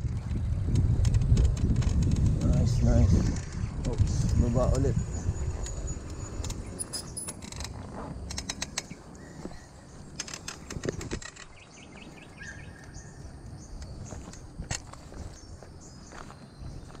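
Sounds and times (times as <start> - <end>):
faint bird chirps: 11.4 - 14.4.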